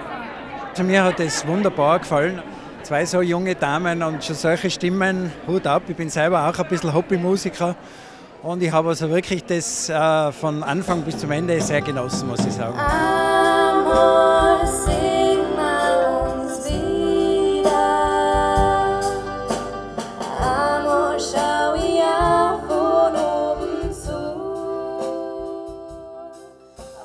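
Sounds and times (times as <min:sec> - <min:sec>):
accordion: 0:10.8 - 0:27.0
women singing in harmony: 0:12.6 - 0:27.0.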